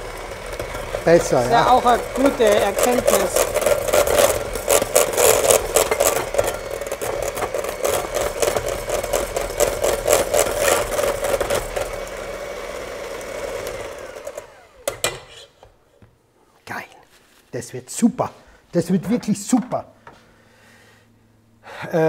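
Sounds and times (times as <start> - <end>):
electric hand mixer running: 0.0 - 15.5
beaters clattering against steel bowl: 0.4 - 12.0.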